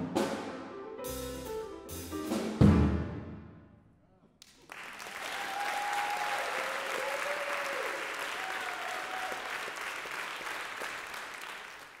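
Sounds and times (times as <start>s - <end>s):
audience applauding: 4.4s - 12.0s
drawn-out cheers: 5.0s - 9.8s.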